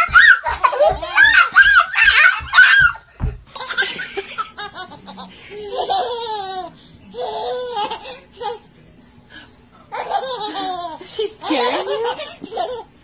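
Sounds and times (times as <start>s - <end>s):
baby laughing and squealing: 0.0s - 3.0s.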